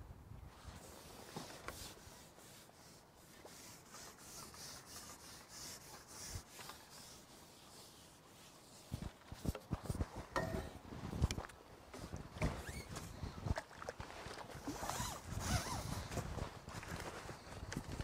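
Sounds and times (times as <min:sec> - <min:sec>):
faint rubbing and rustling: 0:00.5 - 0:11.3, 0:14.7 - 0:16.4.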